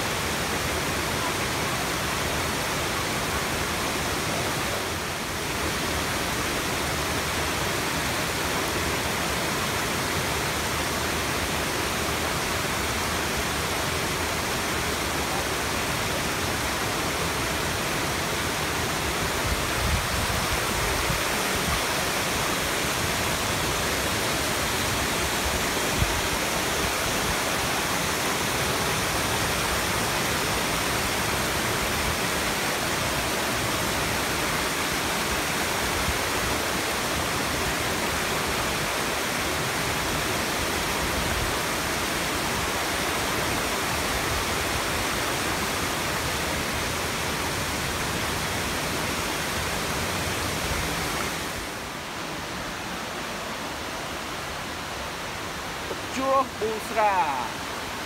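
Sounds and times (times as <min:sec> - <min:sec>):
water rushing over rocks: 0:00.0 - 0:58.0.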